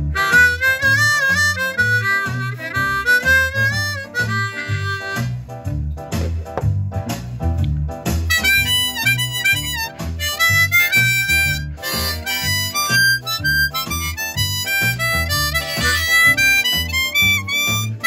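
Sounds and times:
blues harmonica with bent notes: 0.0s - 5.6s, 8.2s - 18.0s
blues backing music with bass: 0.0s - 18.0s.

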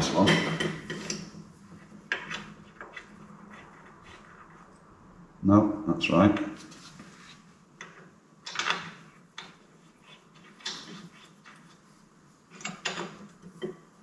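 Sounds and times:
metallic clicks and knocks: 7.8s - 9.6s.

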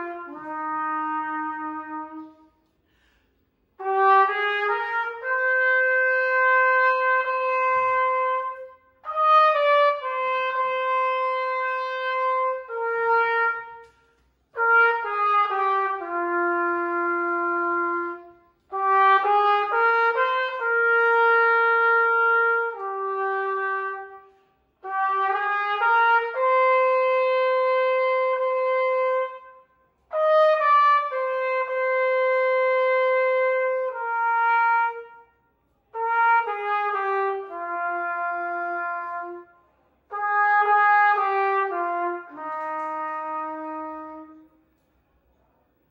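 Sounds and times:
solo trumpet hymn melody: 0.0s - 2.8s, 3.7s - 44.8s
player breathing: 2.7s - 3.7s.

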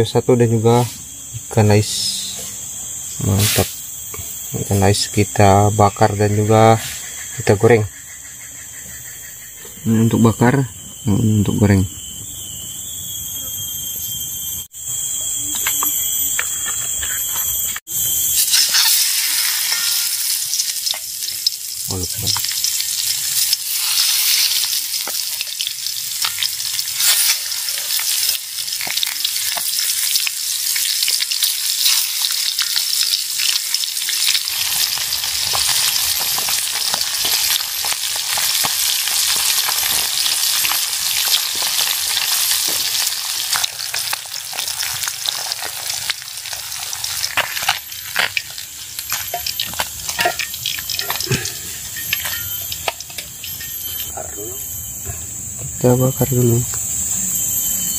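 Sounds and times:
high-pitched drone: 9.1s - 25.7s, 46.8s - 57.9s
fish sizzling in hot oil: 17.9s - 54.1s.

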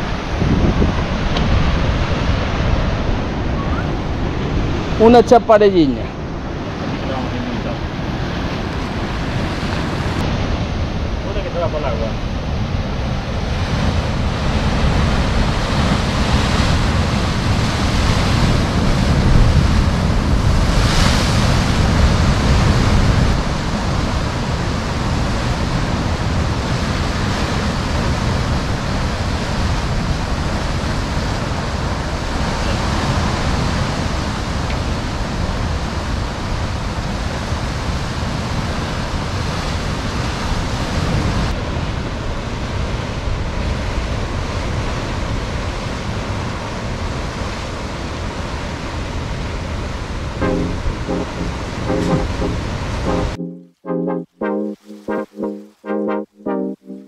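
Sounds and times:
wind rumbling on microphone: 0.0s - 5.2s, 5.8s - 43.9s
sea waves breaking: 0.0s - 11.2s, 12.2s - 36.2s.

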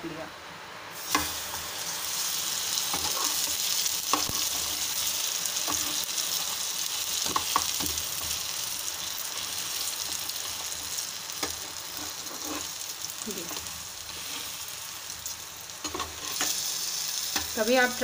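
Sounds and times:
bread sizzling in oil: 0.9s - 18.0s
metal spatula scraping a pan: 2.9s - 6.2s, 11.4s - 12.8s, 15.8s - 16.6s.

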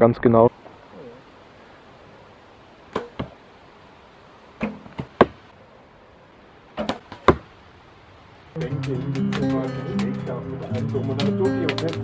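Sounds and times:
arrow hitting target: 2.9s - 3.3s, 4.6s - 5.4s, 6.8s - 7.4s.

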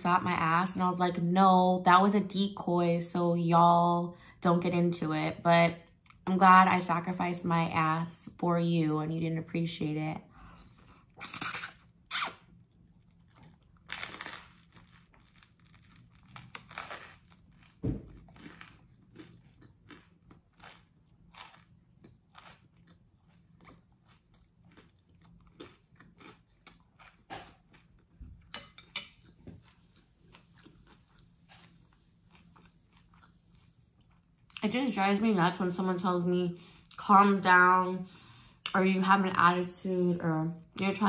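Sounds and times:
chewing with crisp crunches: 10.6s - 34.8s
wet mouth sounds: 11.2s - 12.5s.

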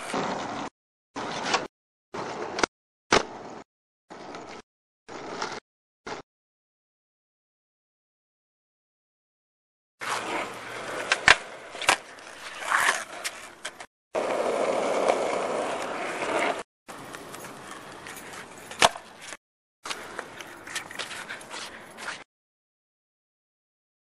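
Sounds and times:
skateboard wheels rolling: 0.0s - 6.2s, 10.0s - 22.2s
skateboard clacks: 10.0s - 22.2s.

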